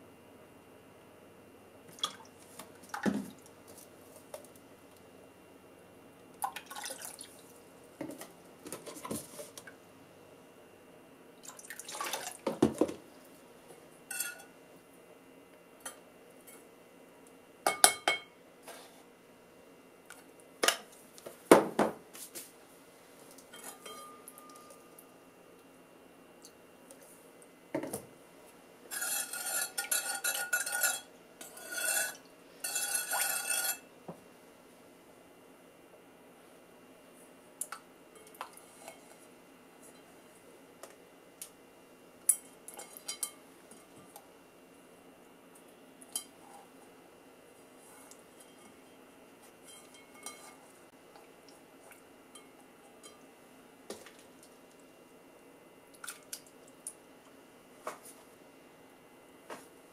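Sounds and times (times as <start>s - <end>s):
metal spoon clinking on metal pot: 14.1s - 14.5s, 23.6s - 24.8s
spoon scraping and rattling in pot: 14.1s - 14.5s, 28.9s - 33.9s, 49.6s - 50.6s.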